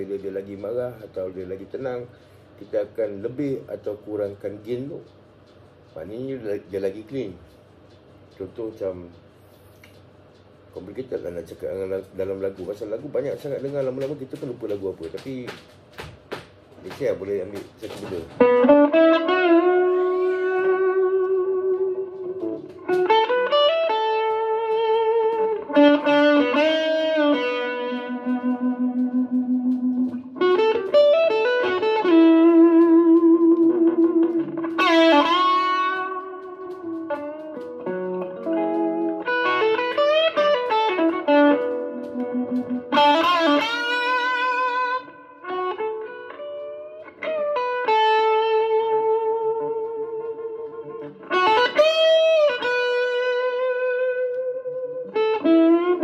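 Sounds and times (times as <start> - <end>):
electric guitar lead melody: 18.2 - 56.0.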